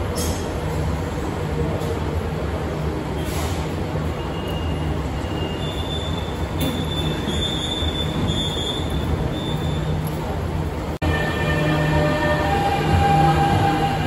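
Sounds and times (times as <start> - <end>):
train running hum: 0.0 - 14.0
wheels and brakes squealing: 3.2 - 10.0.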